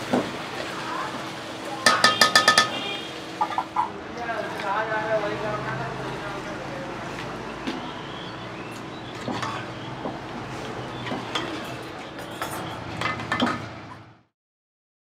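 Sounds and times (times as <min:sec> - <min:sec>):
metal ladle scraping cooking pot: 0:01.9 - 0:02.9.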